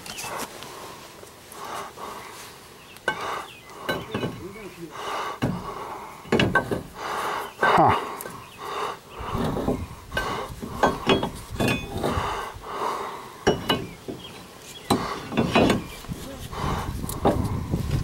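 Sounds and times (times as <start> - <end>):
metal clinks and knocks: 3.8 - 4.7, 5.4 - 7.0, 9.2 - 12.6, 13.4 - 16.0.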